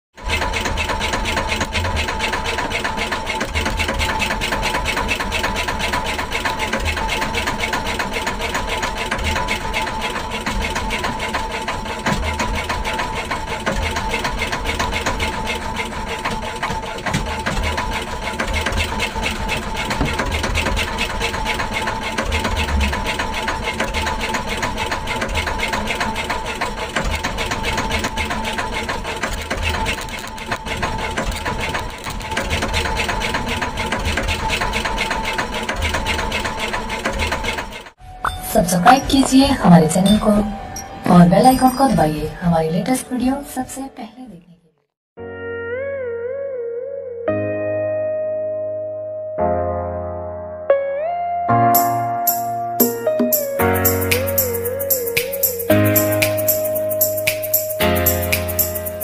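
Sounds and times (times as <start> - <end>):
boat engine running: 0.1 - 42.4, 51.8 - 59.0.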